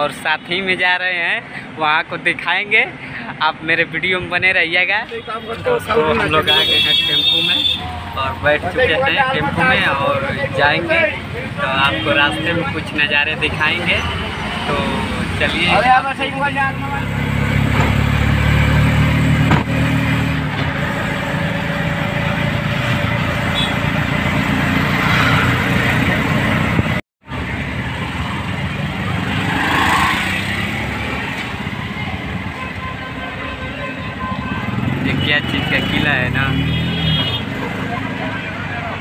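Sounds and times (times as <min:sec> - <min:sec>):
road and wind noise: 0:00.0 - 0:39.0.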